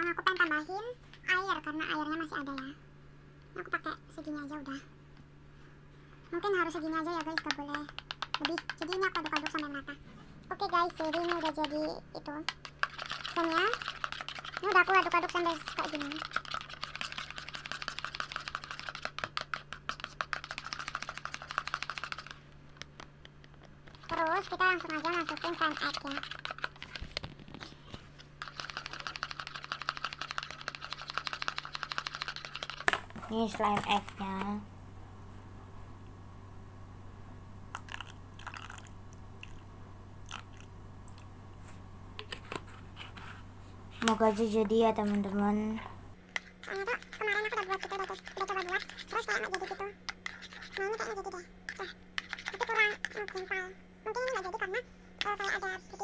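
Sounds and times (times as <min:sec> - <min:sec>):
steady low hum: 0:00.0 - 0:56.0
spoon stirring in plastic bowl: 0:06.6 - 0:09.9, 0:10.6 - 0:22.4, 0:23.8 - 0:34.5, 0:37.7 - 0:39.7, 0:42.2 - 0:53.5.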